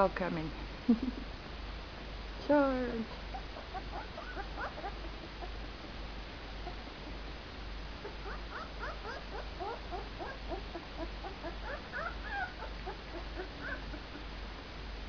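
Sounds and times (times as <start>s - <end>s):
puppies squeaking and whimpering: 3.2s - 5.7s, 8.0s - 14.3s.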